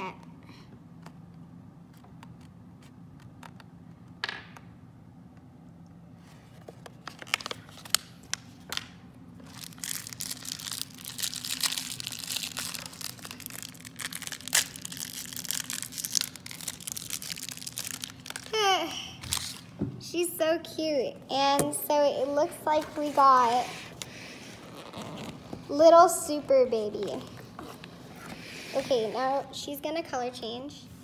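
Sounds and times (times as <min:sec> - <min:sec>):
plastic wrapper crinkling: 0:06.6 - 0:18.6, 0:19.2 - 0:19.8
plastic wrapper tearing: 0:06.9 - 0:18.6, 0:19.2 - 0:19.7.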